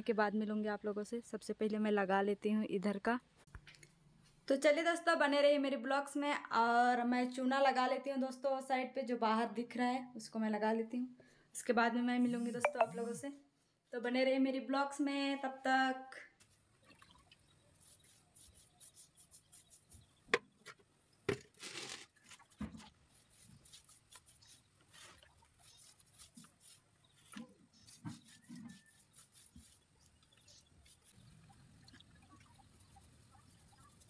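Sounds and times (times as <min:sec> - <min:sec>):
wet rubbing on a wall: 0:17.7 - 0:20.2, 0:22.8 - 0:31.3.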